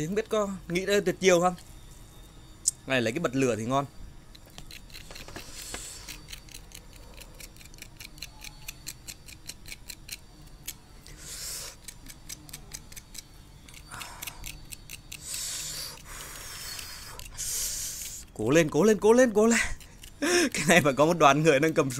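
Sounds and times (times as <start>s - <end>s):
pick scratching and tapping candy: 4.4s - 18.8s.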